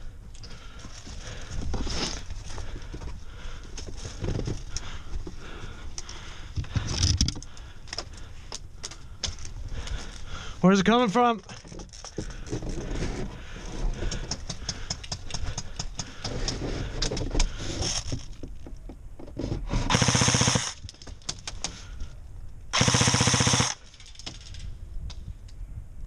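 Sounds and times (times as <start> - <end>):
airsoft rifle full-auto bursts: 19.9 - 20.8, 22.8 - 23.8.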